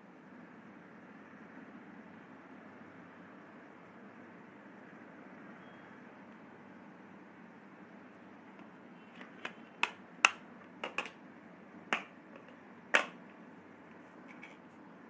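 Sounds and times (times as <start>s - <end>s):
makeup cases clicking: 9.1s - 11.2s, 12.0s - 13.2s.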